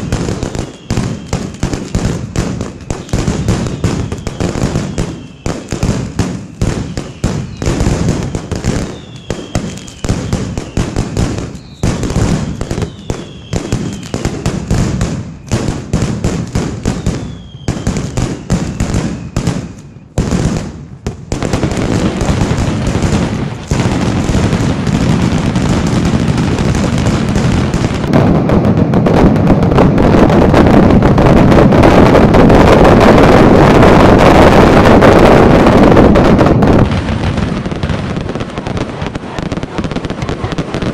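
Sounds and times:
falling firework whistles: 0.0 - 20.7
firecrackers banging in volleys: 0.0 - 40.9.

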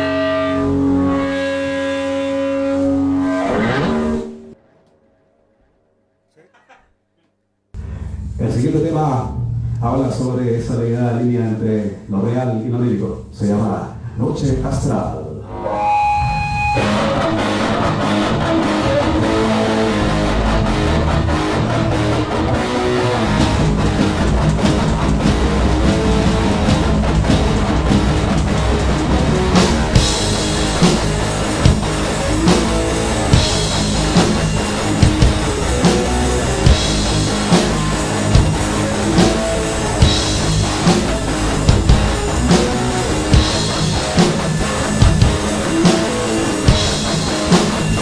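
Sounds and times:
rock band playing instrumental: 15.7 - 48.0
drum and cymbal accents: 23.2 - 48.0.

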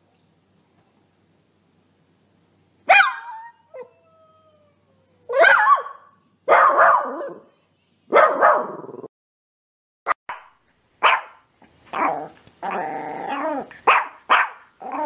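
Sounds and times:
puppy whining: 0.6 - 1.1, 3.2 - 5.4, 12.0 - 13.9
puppy yapping and howling: 2.9 - 7.5, 11.0 - 15.0.

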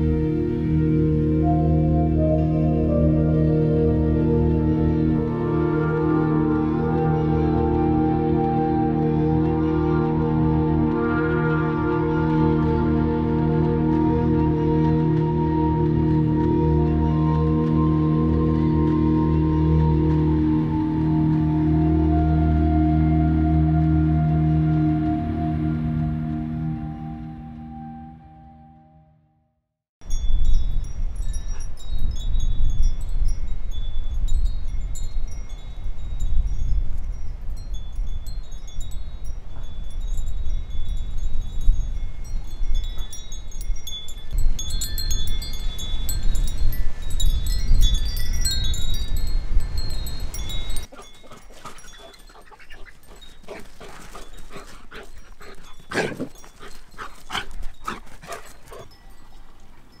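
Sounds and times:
metal wind chimes ringing: 30.0 - 60.0
wind rumbling on microphone: 30.0 - 60.0
dogs playing: 50.8 - 60.0.

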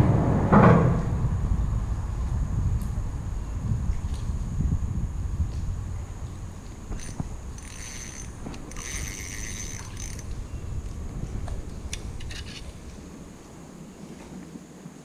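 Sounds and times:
fishing reel gears whirring: 6.8 - 10.4
reel clicks: 6.9 - 10.4.

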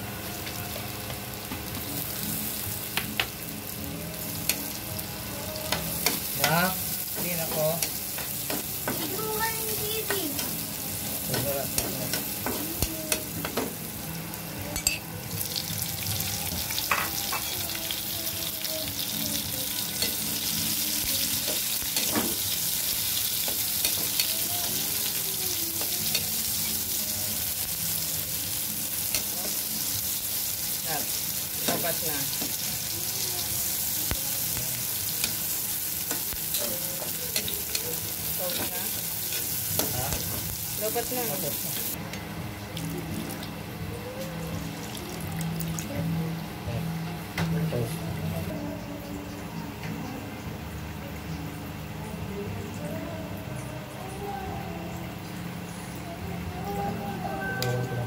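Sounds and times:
garlic and onion sizzling in oil: 0.0 - 46.0.

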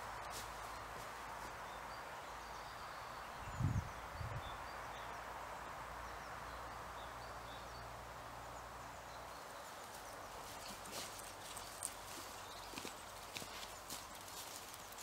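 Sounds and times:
footsteps in dry grass: 0.0 - 1.9, 9.6 - 15.0
steady outdoor hiss: 0.0 - 15.0.

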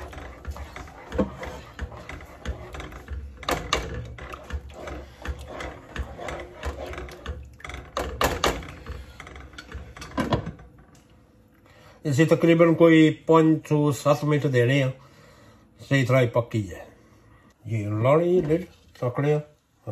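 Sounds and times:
whisk scraping a saucepan: 0.0 - 10.8
low steady hum: 0.0 - 19.9.

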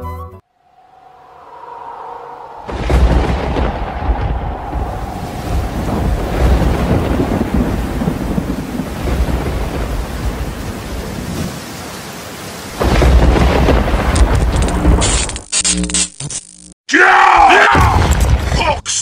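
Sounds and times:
low rumbling thunder: 1.3 - 11.7, 12.7 - 15.0
rain: 2.6 - 15.5.

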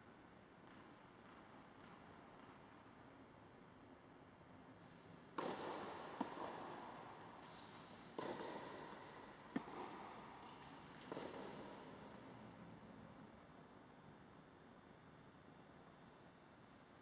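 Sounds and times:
tennis ball hits echoing: 5.3 - 12.5.

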